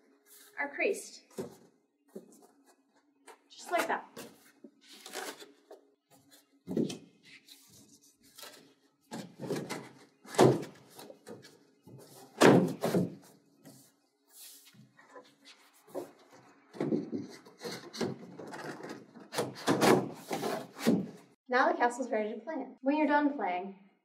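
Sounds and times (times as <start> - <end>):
cardboard scraping: 3.6 - 16.2, 16.8 - 21.2
cardboard knocks and thumps: 6.7 - 7.0, 9.1 - 13.2.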